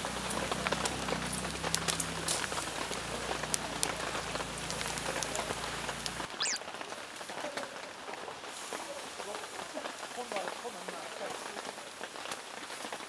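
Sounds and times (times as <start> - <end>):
heavy rain: 0.0 - 13.0
falling whistle: 6.4 - 6.6.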